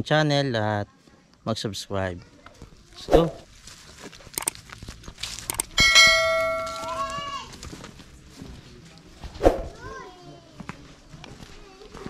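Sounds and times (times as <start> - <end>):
bell ding: 5.8 - 7.1.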